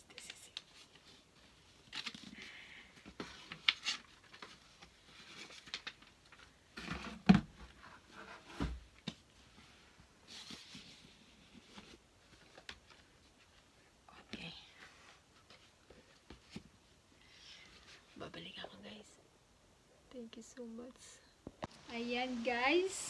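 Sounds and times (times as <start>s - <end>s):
cardboard rustling and scraping: 6.7s - 13.7s.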